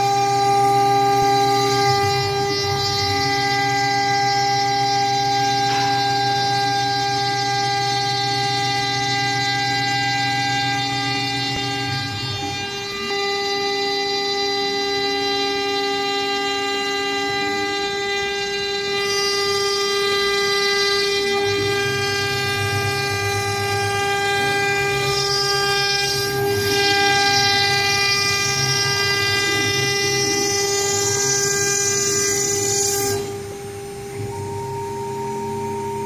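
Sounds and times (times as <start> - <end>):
low pulsing hum: 0.0 - 36.0
router spindle high-pitched whine: 0.0 - 36.0.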